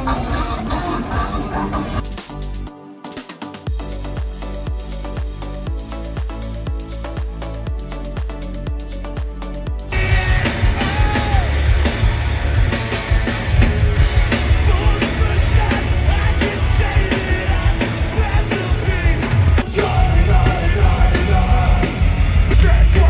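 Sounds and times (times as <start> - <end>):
yelled vocals: 0.0 - 2.0, 9.9 - 23.0
heavy rock music: 0.0 - 23.0
pounding drum beat: 3.7 - 23.0.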